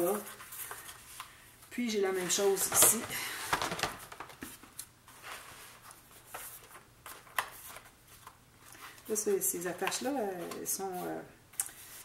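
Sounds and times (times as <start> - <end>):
paper rustling: 2.1 - 9.2.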